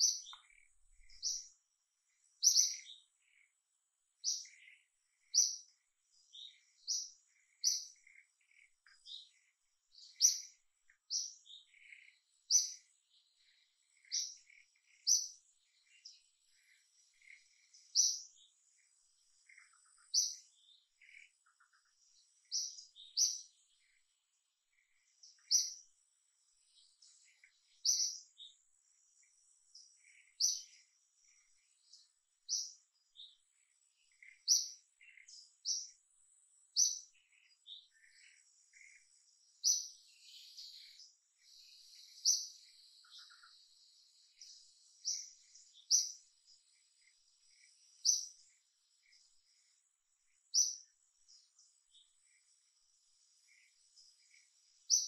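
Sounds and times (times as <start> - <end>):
soft bird chirps: 0.0 - 55.0
bird sharp high calls: 2.4 - 3.4.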